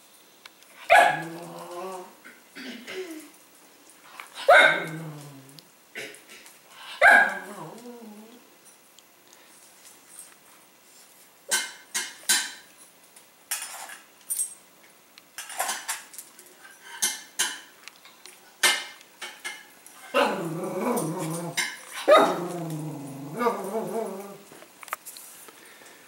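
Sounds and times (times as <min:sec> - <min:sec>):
dog barking: 0:00.9 - 0:01.4, 0:04.4 - 0:05.0, 0:06.9 - 0:07.6, 0:22.0 - 0:22.4
dog whining: 0:00.9 - 0:02.2, 0:07.0 - 0:08.5, 0:20.1 - 0:24.5
clinks of metal food bowl: 0:13.5 - 0:14.6, 0:15.4 - 0:17.7, 0:18.6 - 0:20.2, 0:20.9 - 0:22.1.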